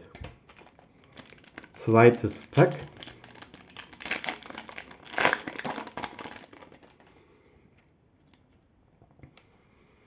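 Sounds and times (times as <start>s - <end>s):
cards ticking: 0.2s - 7.1s
foil wrapper crinkling: 0.4s - 7.1s.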